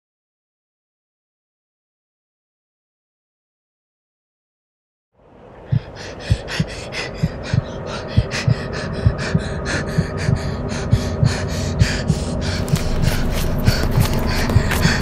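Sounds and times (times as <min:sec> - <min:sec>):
faint low drone: 0:05.2 - 0:15.0
heavy panting breaths: 0:05.7 - 0:15.0.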